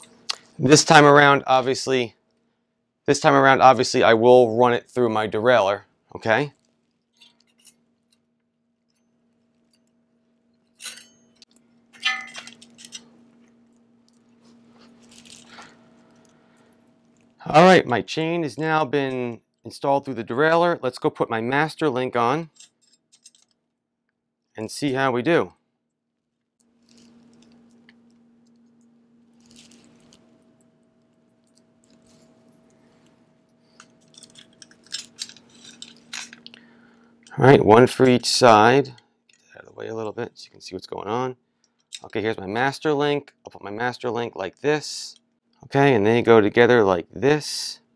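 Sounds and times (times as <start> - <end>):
bicycle chain clinking and rattling: 10.7 - 13.0, 15.0 - 15.8, 22.5 - 23.5, 29.4 - 30.3, 31.8 - 36.5
bicycle chain links clinking: 33.7 - 36.5.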